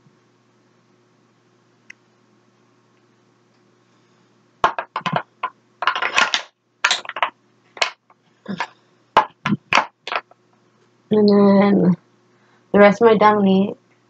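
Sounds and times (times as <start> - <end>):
plastic tubes clicking and rattling: 4.6 - 10.3.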